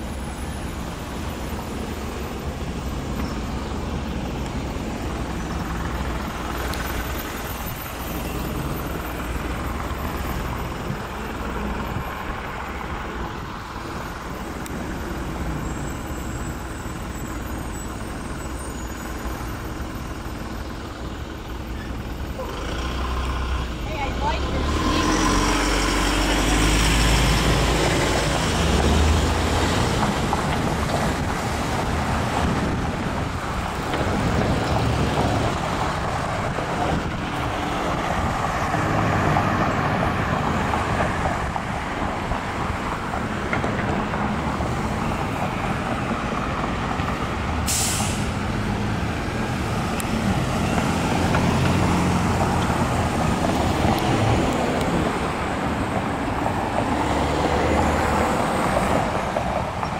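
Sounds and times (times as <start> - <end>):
truck engine running: 0.0 - 56.8
road traffic passing: 0.0 - 59.9
short sharp hiss: 47.7 - 48.3.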